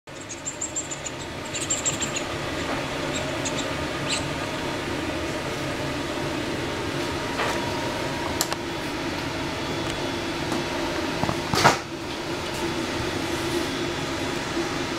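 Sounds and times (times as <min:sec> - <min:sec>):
low hum: 0:00.1 - 0:11.0.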